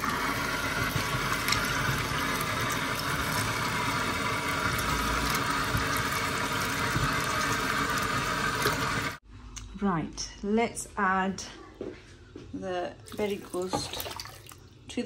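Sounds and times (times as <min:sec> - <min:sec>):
tap running into a bowl: 0:04.6 - 0:08.9.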